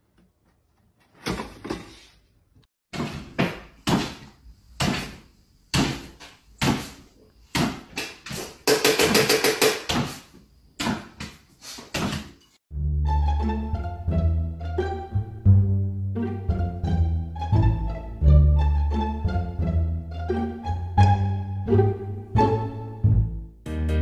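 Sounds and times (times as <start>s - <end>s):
sharp knocks and clatters: 7.6s - 10.2s.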